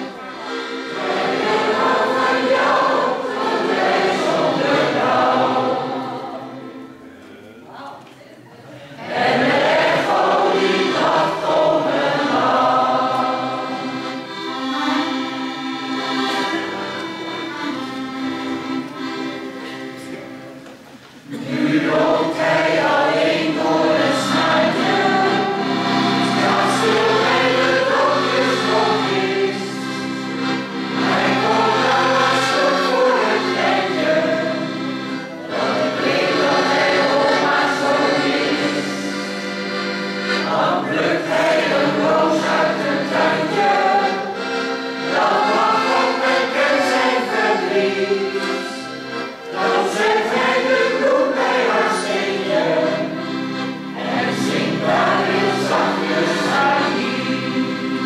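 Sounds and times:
mixed choir singing: 0.0 - 7.2, 8.8 - 16.8, 21.2 - 58.0.

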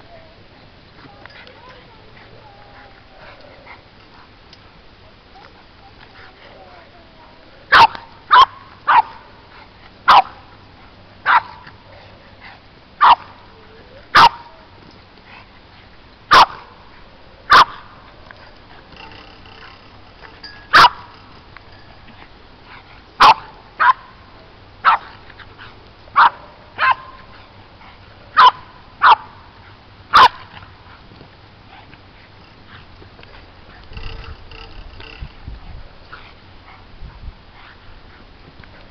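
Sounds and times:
dog barking: 7.7 - 9.2, 10.1 - 10.4, 11.3 - 11.6, 13.0 - 13.3, 16.3 - 16.6, 17.5 - 17.8, 23.2 - 24.0, 26.2 - 27.2, 28.4 - 29.3, 30.1 - 30.4.

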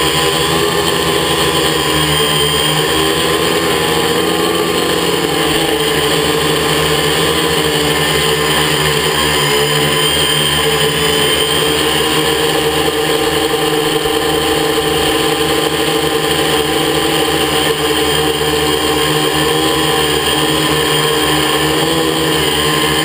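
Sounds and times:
drone propellers whirring: 0.0 - 23.0.

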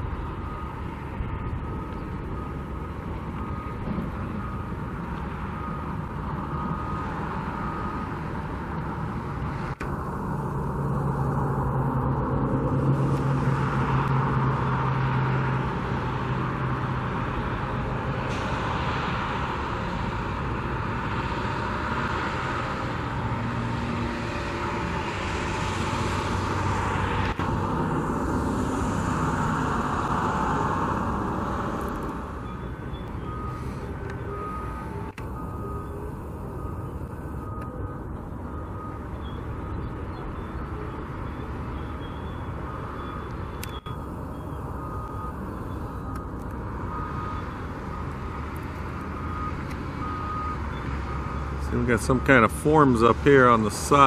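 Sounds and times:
heavy diesel engines running: 0.0 - 54.0
faint beep: 31.5 - 48.1, 49.2 - 52.5.

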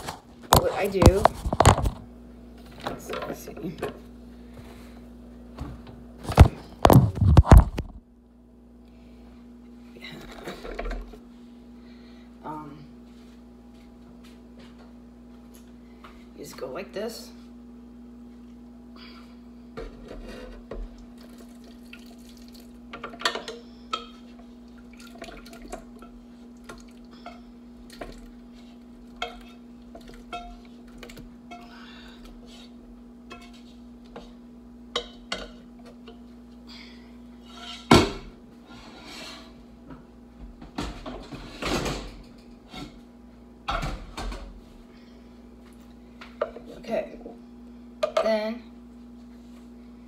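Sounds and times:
utensils clinking against a pot: 29.2 - 30.6.

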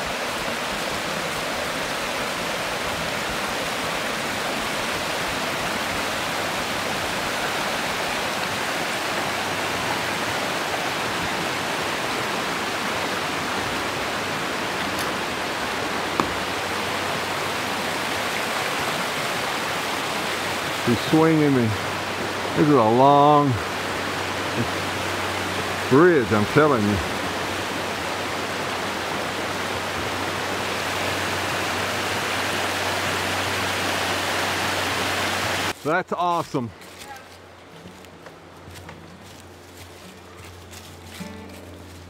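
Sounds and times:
mountain stream rushing: 0.0 - 42.0.

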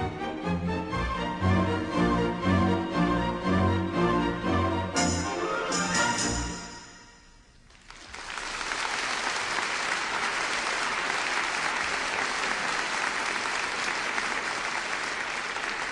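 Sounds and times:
audience applause: 7.7 - 15.9.

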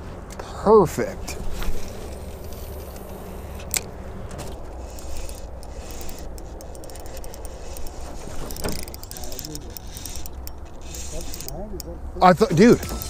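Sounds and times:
fishing reel scrapes and ticks: 1.6 - 3.9, 4.6 - 13.0
sharp reel click: 4.8 - 13.0.

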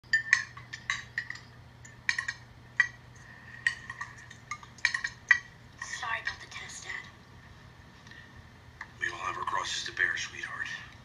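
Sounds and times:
cutlery clinking on china plates: 3.7 - 5.5.

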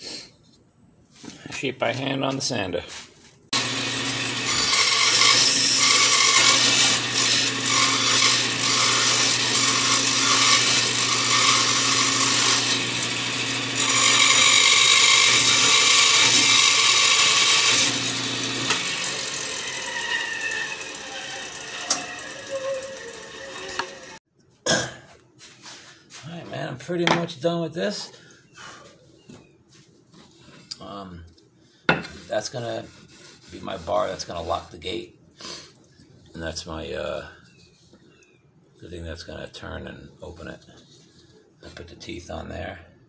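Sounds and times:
electric saw cutting wood: 3.5 - 24.2.

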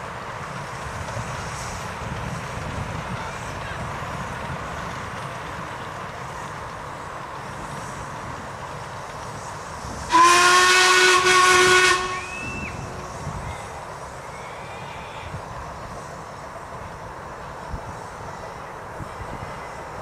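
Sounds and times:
miniature steam train rumbling: 0.0 - 20.0
steam whistle blast: 10.1 - 13.0.

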